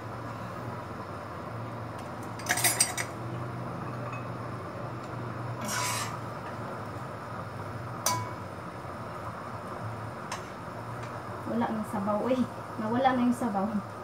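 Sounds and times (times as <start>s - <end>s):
steady low hum: 0.0s - 14.0s
dishes and cutlery clinking: 2.4s - 3.1s.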